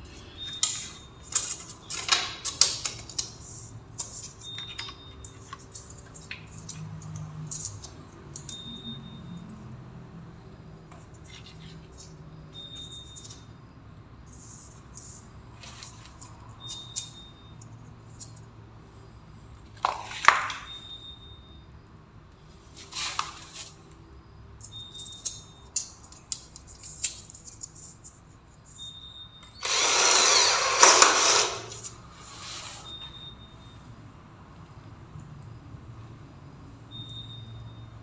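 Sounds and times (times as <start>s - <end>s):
cordless drill driving a screw: 29.6s - 31.8s.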